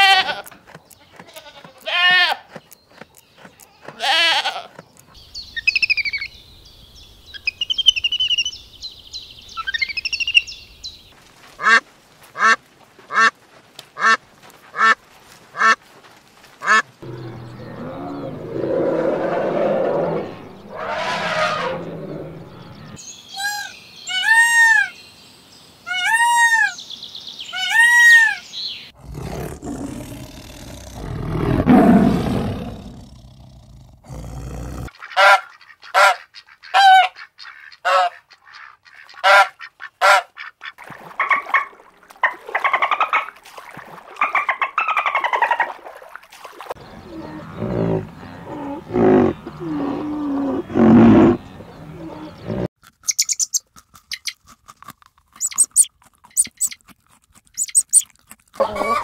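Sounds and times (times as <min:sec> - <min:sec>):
arched animal calls: 0:16.6 - 0:23.0, 0:46.8 - 0:54.4, 0:55.4 - 0:56.8, 0:57.6 - 0:59.0
low rough animal sound: 0:17.0 - 0:23.0, 0:29.0 - 0:34.9, 0:46.8 - 0:52.7
short sharp animal calls and chatter: 0:47.1 - 0:54.4, 0:55.4 - 0:59.0.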